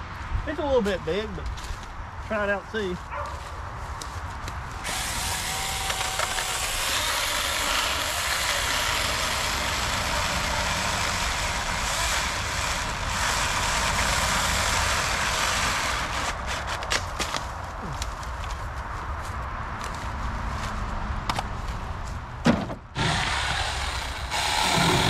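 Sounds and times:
electric chainsaw cutting log: 4.8s - 17.0s, 22.9s - 25.0s.

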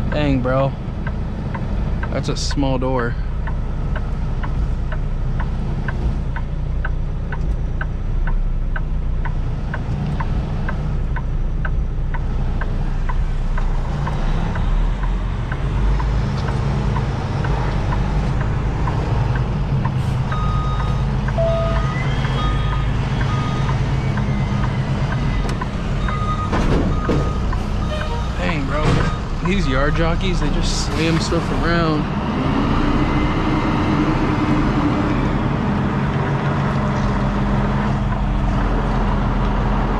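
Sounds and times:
truck diesel engine running: 0.0s - 39.9s
light ticking: 0.2s - 30.5s
reversing beeper: 20.0s - 30.8s.

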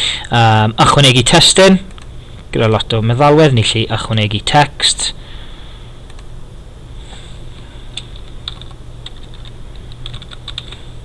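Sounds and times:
steady low hum: 0.0s - 11.0s
computer keyboard typing: 8.0s - 10.8s.

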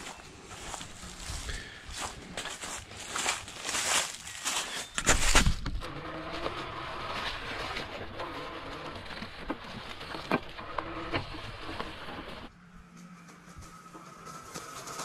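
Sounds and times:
tyres rushing on leaf litter: 0.0s - 12.5s, 13.3s - 15.0s
electric motor whine: 5.0s - 15.0s.

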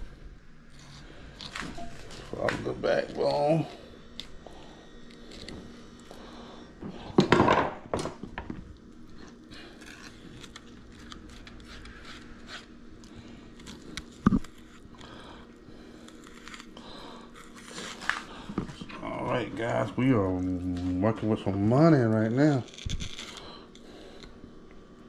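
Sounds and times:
knife cutting and scraping fish: 0.7s - 2.4s, 9.2s - 18.6s.

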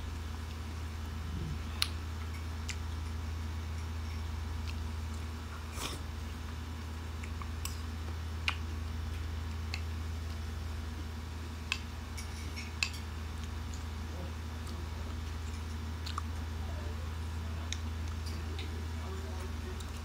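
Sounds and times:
low electrical hum: 0.0s - 20.0s
person chewing: 0.4s - 10.5s, 14.6s - 16.5s
wet smacking or slurping: 5.5s - 6.1s.

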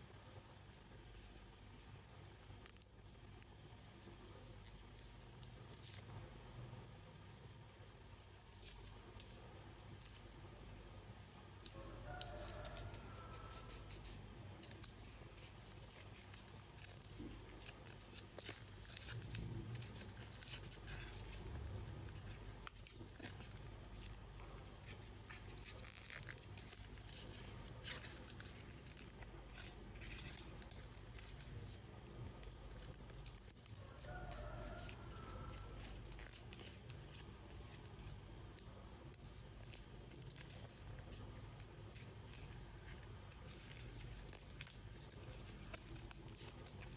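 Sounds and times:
paper folding and creasing: 11.2s - 46.9s.

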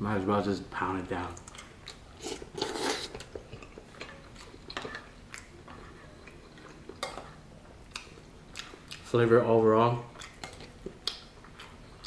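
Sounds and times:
person chewing: 1.4s - 9.1s, 10.1s - 12.0s
person slurping noodles: 2.2s - 3.2s.

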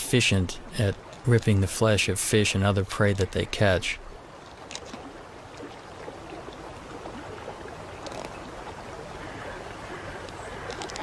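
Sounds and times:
river water over gravel: 0.0s - 11.0s
faint clicks: 8.0s - 8.5s, 10.1s - 11.0s.

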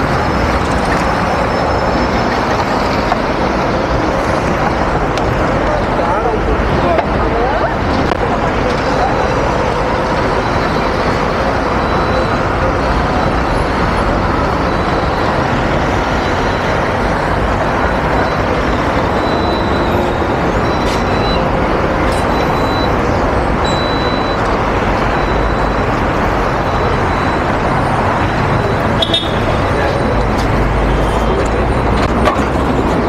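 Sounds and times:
city traffic: 0.0s - 33.0s.

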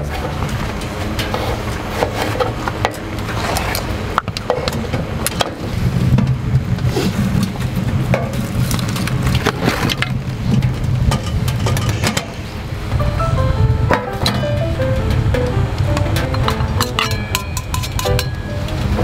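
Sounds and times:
wood fire crackling: 0.1s - 13.0s
low steady hum: 7.4s - 19.0s.

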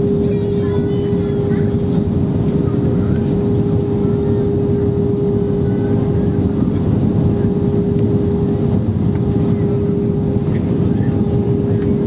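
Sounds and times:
airplane cabin engine roar: 0.0s - 12.0s.

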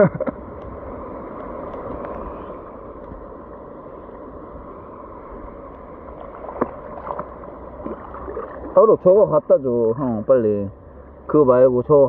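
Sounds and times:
water lapping ticks: 0.1s - 4.2s, 5.0s - 9.4s
river water rushing: 0.5s - 12.0s.

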